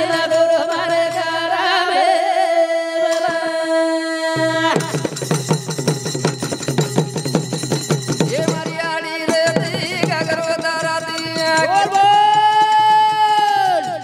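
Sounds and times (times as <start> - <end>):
percussion fast rhythm: 4.4 - 14.0.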